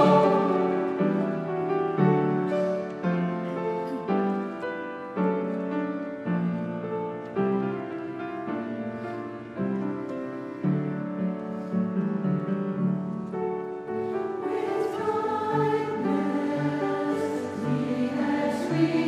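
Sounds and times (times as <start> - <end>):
piano playing slow chords: 0.0 - 19.0.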